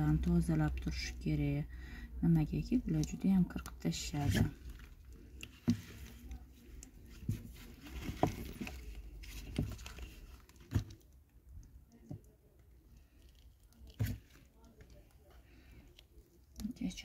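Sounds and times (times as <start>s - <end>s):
rustling: 3.9s - 11.2s.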